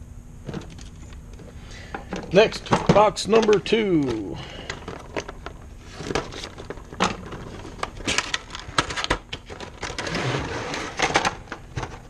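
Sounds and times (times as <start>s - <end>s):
plastic tray sliding out of cardboard: 9.8s - 11.4s.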